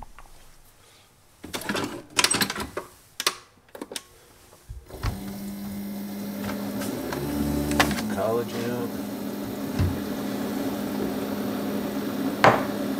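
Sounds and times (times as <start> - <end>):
coffee maker pump humming: 4.9 - 12.9.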